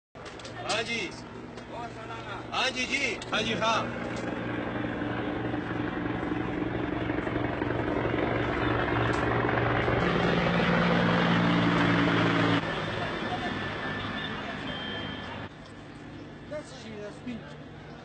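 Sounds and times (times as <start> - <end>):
engine running with low hum: 1.2 - 16.7
higher tone: 2.9 - 15.5.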